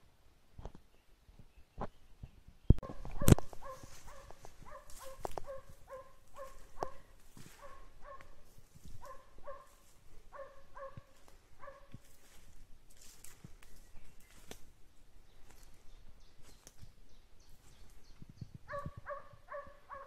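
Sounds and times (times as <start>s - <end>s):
undergrowth crackling underfoot: 2.8s - 20.0s
hound baying: 3.2s - 8.4s, 9.0s - 11.9s, 18.7s - 20.0s.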